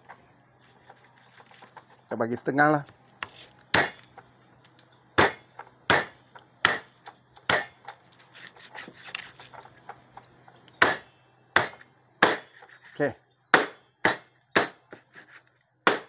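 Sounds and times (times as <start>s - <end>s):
knife chopping carcass on board: 3.7s - 4.1s, 5.2s - 6.9s, 7.5s - 7.7s, 11.6s - 12.8s.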